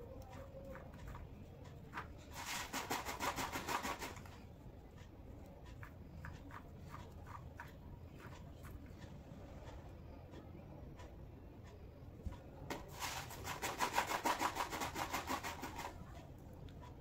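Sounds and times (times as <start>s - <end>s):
rapid rubbing or scraping: 2.2s - 4.4s, 12.9s - 16.0s.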